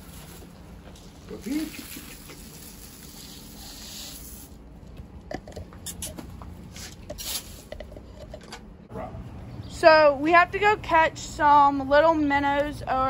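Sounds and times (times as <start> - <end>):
chickens scratching in wood shavings: 0.0 - 0.6, 6.7 - 7.7.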